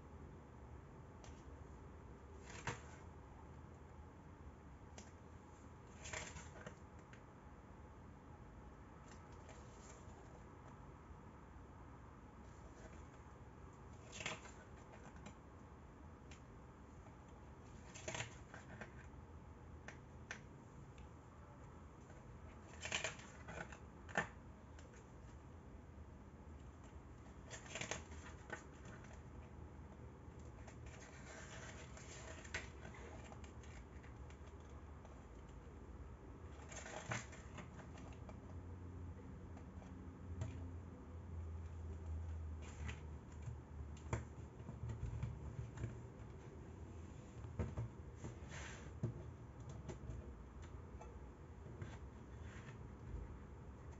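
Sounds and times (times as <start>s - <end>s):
faint low hum: 0.0s - 53.9s
paper pages turning and rustling: 27.4s - 29.2s, 30.6s - 34.1s.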